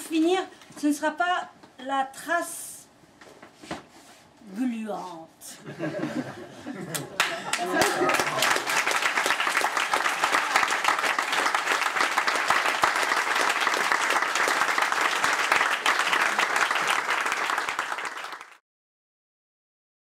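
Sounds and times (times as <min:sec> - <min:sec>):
audience applauding: 0:06.9 - 0:18.6.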